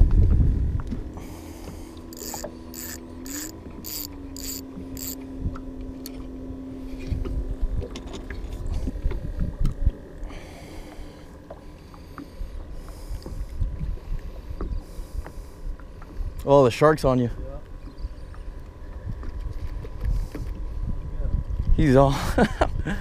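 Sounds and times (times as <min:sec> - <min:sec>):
steady low hum: 0:00.0 - 0:23.0
fishing reel clicking: 0:02.1 - 0:05.2.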